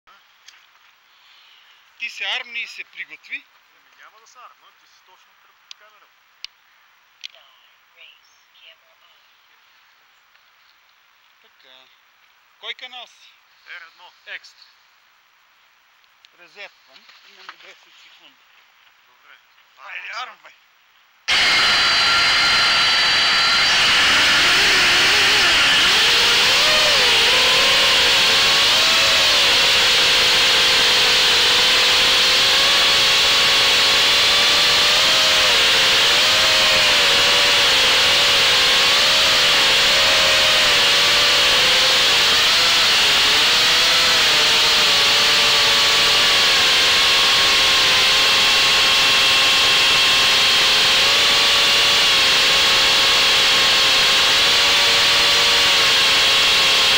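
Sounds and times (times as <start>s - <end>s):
quadcopter motors whining: 21.3s - 56.9s.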